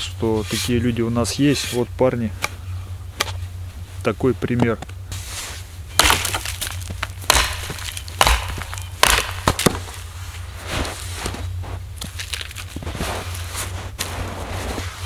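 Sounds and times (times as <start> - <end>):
twigs rustling: 5.0 - 15.0
dry wood cracking and snapping: 5.9 - 10.1, 12.0 - 12.9.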